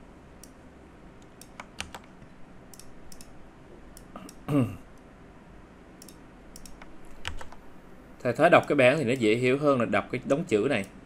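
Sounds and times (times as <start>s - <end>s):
mouse and keyboard clicks: 6.0s - 7.6s.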